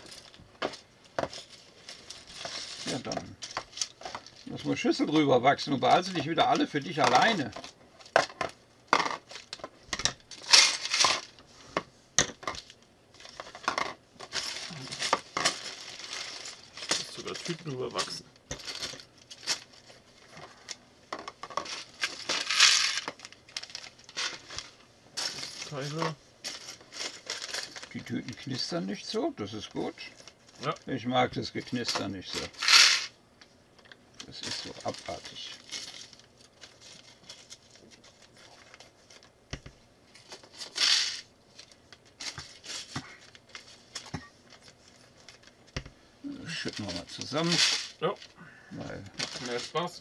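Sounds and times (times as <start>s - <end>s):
plastic bags crinkling: 0.0s - 5.2s, 12.5s - 28.9s, 34.2s - 39.4s, 46.4s - 50.0s
plastic bricks clattering into bowls: 21.2s - 24.5s, 31.8s - 33.2s, 40.5s - 41.3s, 46.5s - 48.0s.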